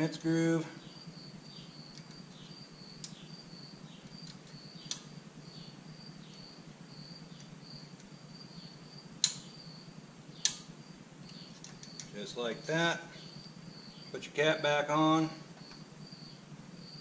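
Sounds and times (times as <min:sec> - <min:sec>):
cricket chirping: 0:00.0 - 0:17.0
sharp metal clicks: 0:01.9 - 0:03.3, 0:04.1 - 0:05.2, 0:09.2 - 0:09.6, 0:10.4 - 0:12.2.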